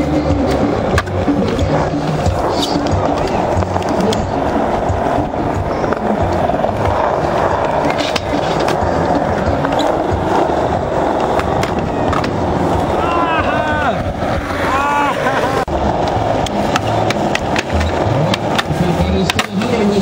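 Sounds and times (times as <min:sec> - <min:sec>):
skateboard clacks: 0:00.0 - 0:20.0
skateboard wheels rolling on concrete: 0:00.0 - 0:20.0.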